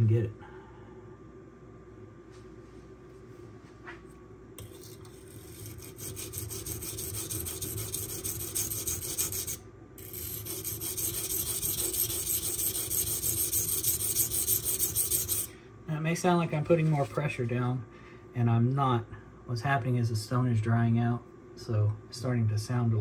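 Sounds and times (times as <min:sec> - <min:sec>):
knife scraping on sharpening stone: 0:04.6 - 0:15.5.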